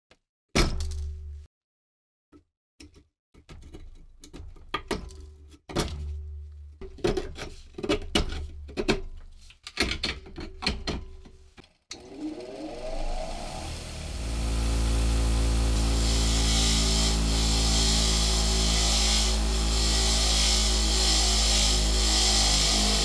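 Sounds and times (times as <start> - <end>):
bench grinder whining: 11.9 - 23.0
file scraping rust off metal: 14.9 - 23.0.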